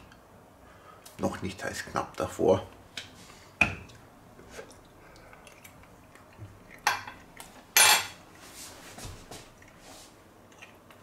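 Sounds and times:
cutlery clatter: 0:07.8 - 0:08.2.

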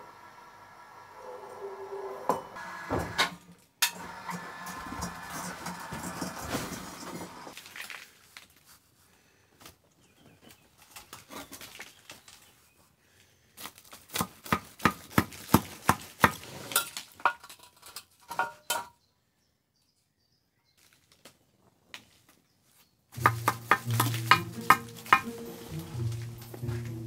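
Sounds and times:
electric hoist motor humming: 0:00.0 - 0:07.5.

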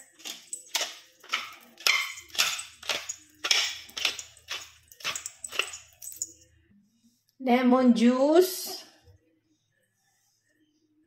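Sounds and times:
pepper mill grinding: 0:00.0 - 0:06.4.

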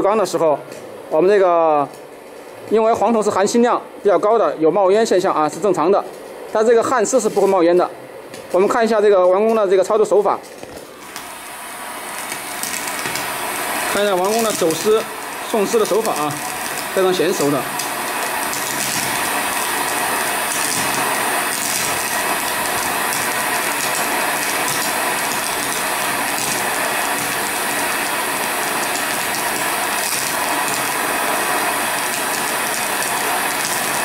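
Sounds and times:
welding arc hissing: 0:06.7 - 0:07.6, 0:10.8 - 0:34.0.

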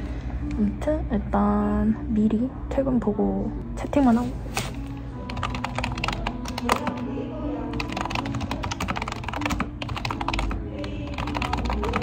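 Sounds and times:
background music: 0:00.0 - 0:12.0
fast keyboard typing: 0:05.2 - 0:07.1, 0:07.7 - 0:12.0.

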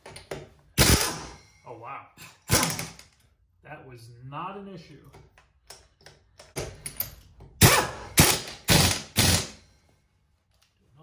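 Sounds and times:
air impact wrench bursts: 0:00.8 - 0:01.4, 0:02.4 - 0:03.0, 0:07.6 - 0:09.7.

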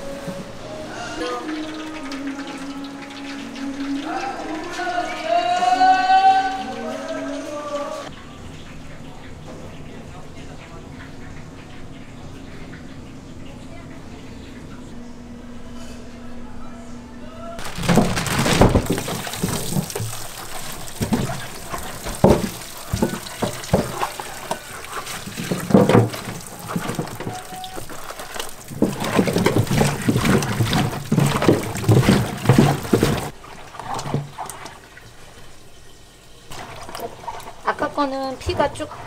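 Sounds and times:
tap water running into sink: 0:01.2 - 0:07.4, 0:17.6 - 0:39.0
hands rubbing wet chicken feet: 0:17.6 - 0:33.3
splashing and squelching: 0:17.6 - 0:35.3, 0:36.5 - 0:39.0.

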